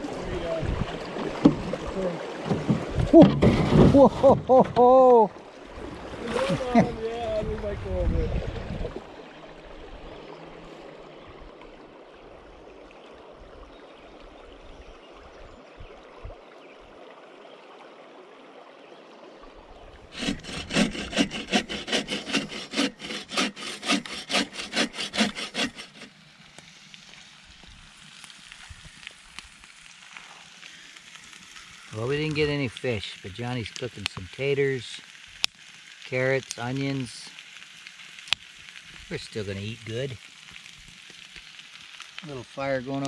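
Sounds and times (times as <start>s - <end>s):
hand saw cutting wood: 20.1s - 26.1s.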